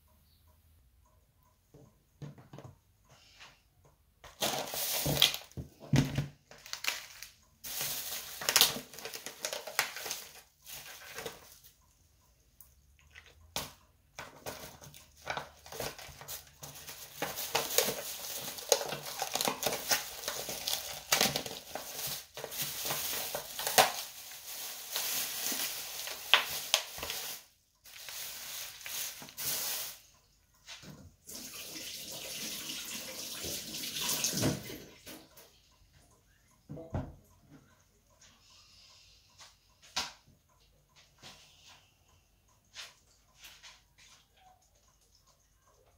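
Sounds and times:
cling film crinkling: 6.4s - 11.7s, 14.4s - 30.0s.

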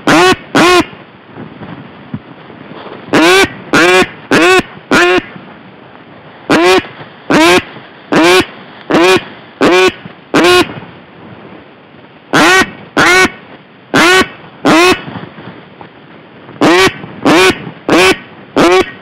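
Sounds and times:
duck quacking: 0.0s - 0.9s, 3.1s - 5.3s, 6.5s - 10.7s, 12.3s - 15.1s, 16.6s - 19.0s.

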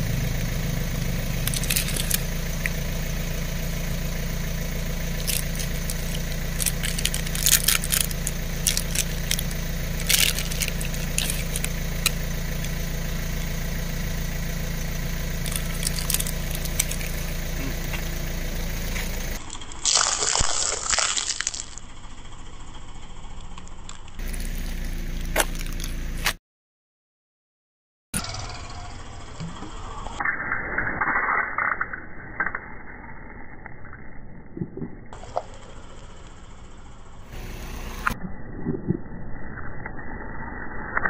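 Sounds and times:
car engine idling: 0.0s - 26.4s, 28.2s - 30.2s, 35.0s - 38.2s
sharp clicks and crinkles: 1.4s - 2.8s, 5.1s - 12.8s, 15.4s - 18.1s, 23.4s - 26.4s
tyre crushing wafer cones: 1.4s - 2.8s, 5.1s - 12.8s, 15.4s - 17.7s, 19.8s - 21.8s, 24.2s - 26.4s.

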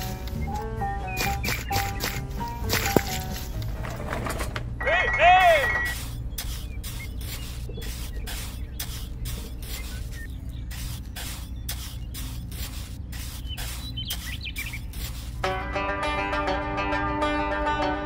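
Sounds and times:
steady low hum: 5.7s - 18.0s
trowel scraping wet cement: 5.8s - 15.4s.

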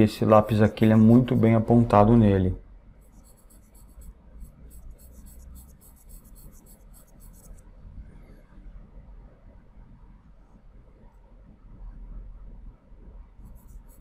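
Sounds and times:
charcoal pencil scratching on paper: 0.4s - 1.8s, 3.0s - 7.6s, 13.5s - 14.0s.

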